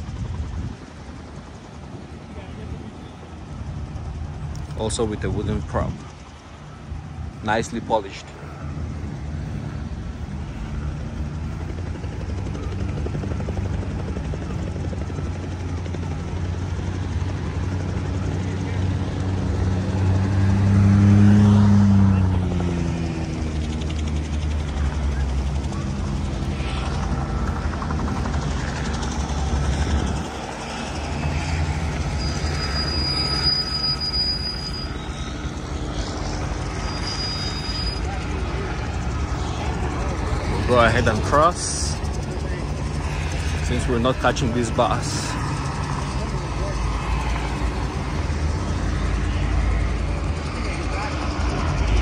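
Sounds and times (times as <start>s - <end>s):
helicopter drone: 0.0s - 52.0s
low engine rumble: 0.0s - 52.0s
thin high tone: 24.8s - 35.7s.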